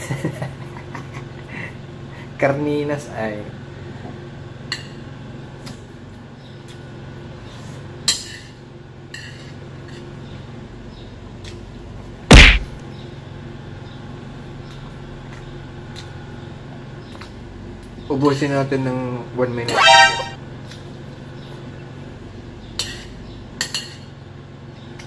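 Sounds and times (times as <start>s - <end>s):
loud knock: 12.3s - 12.7s.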